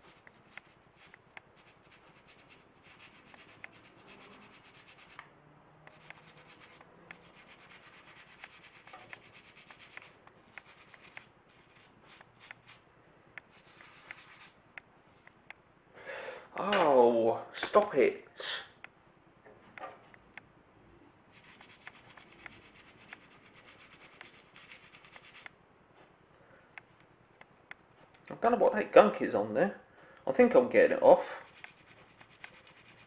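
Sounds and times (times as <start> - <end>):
fast rhythmic scrubbing: 5.9 - 12.8, 31.3 - 33.0.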